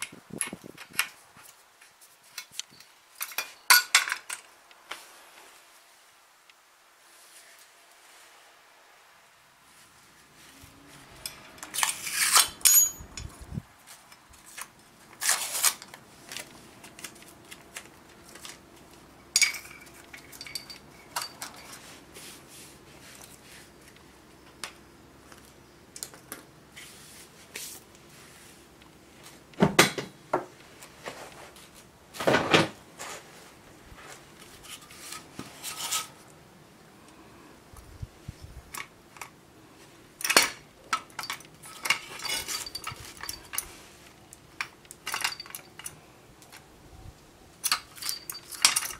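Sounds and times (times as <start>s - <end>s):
metal tools clinking on concrete: 2.4s - 4.5s, 11.2s - 13.4s, 19.2s - 21.8s, 40.2s - 43.8s, 44.6s - 46.0s, 47.6s - 48.9s.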